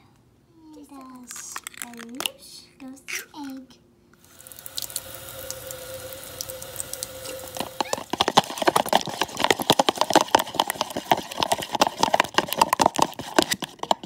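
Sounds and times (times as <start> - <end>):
water running from tap: 4.2 - 9.5.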